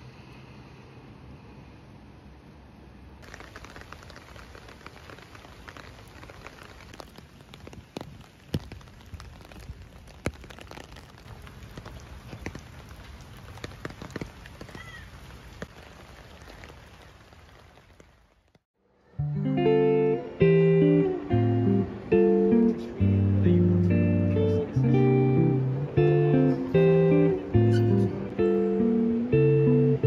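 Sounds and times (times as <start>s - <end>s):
rain falling on pavement: 3.2s - 18.7s, 19.6s - 30.0s
raindrops tapping on umbrella: 3.2s - 18.7s.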